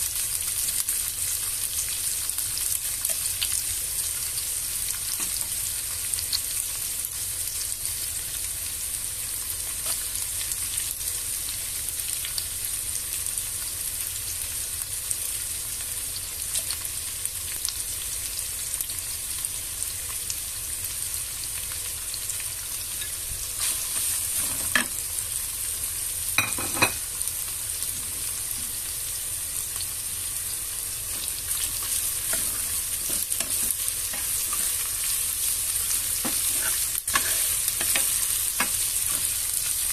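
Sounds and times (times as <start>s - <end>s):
food sizzling in oil: 0.0s - 39.9s
wooden spatula stirring vegetables: 31.1s - 39.9s.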